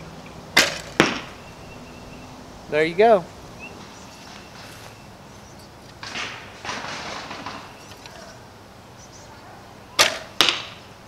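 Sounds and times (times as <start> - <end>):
arrow hitting target: 0.6 - 1.3, 10.0 - 10.8
bow drawing rustle: 3.8 - 5.0.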